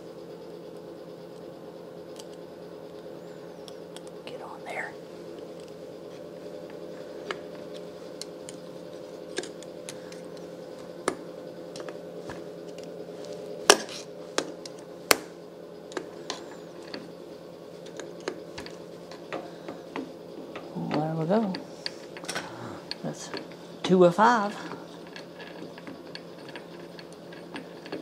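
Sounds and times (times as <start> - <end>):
low background hum: 0.0 - 28.0.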